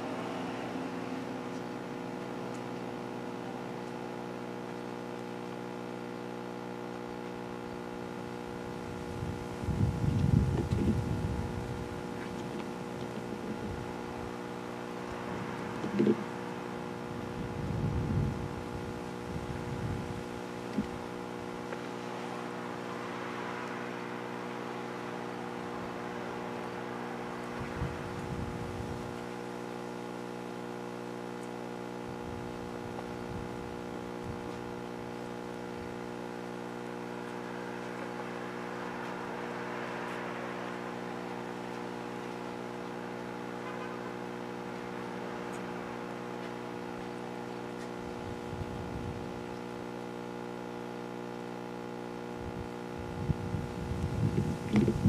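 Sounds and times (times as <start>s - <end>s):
steady tonal hum: 0.0s - 55.0s
wind bumps on microphone: 8.7s - 29.3s, 32.0s - 34.8s, 48.0s - 49.5s, 52.4s - 55.0s.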